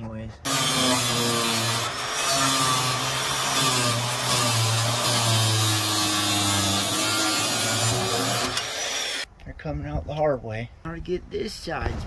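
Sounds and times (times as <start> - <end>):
angle grinder cutting steel: 0.5 - 9.3.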